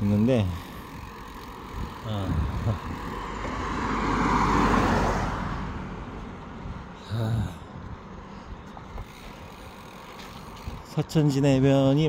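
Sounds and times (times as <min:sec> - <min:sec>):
car driving past: 0:03.2 - 0:06.7.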